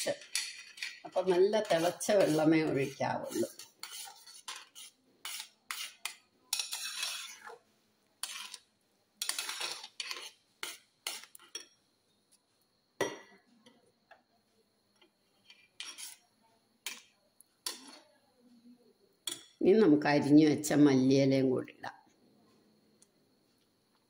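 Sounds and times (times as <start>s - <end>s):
spoon scraping metal pot: 0.0s - 7.6s, 8.2s - 11.8s, 15.4s - 18.1s.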